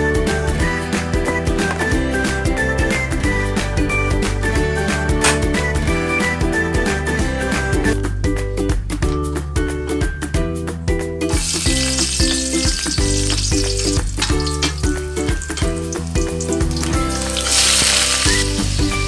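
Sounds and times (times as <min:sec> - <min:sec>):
background music: 0:00.0 - 0:19.0
garlic sizzling in oil: 0:11.3 - 0:19.0.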